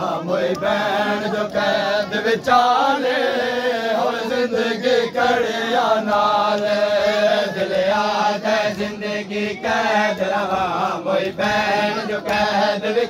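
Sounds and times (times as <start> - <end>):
men chanting in unison: 0.0 - 13.0
sharp slaps: 6.0 - 7.1, 9.9 - 12.7.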